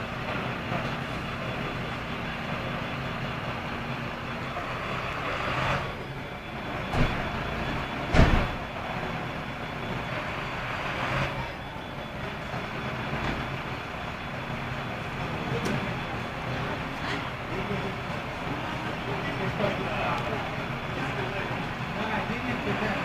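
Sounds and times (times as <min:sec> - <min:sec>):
diesel engines idling: 0:00.0 - 0:23.0
loud thumps: 0:06.9 - 0:07.4, 0:08.0 - 0:08.6.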